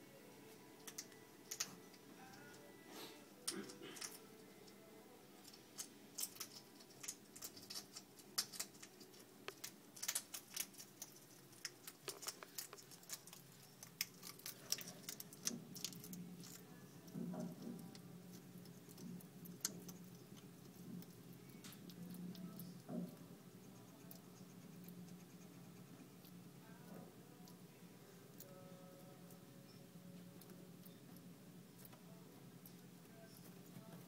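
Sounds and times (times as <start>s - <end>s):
hedgehog crunching dry kibble: 5.4s - 29.5s.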